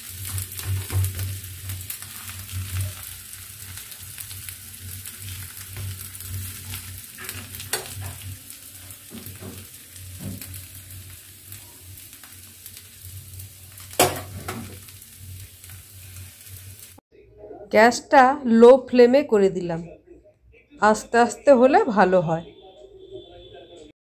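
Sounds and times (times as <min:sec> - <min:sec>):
pancake sizzling in oil: 0:00.0 - 0:17.0.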